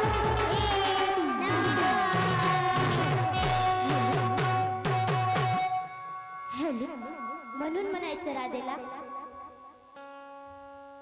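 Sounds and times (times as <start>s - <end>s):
drum beat: 0.0s - 5.8s.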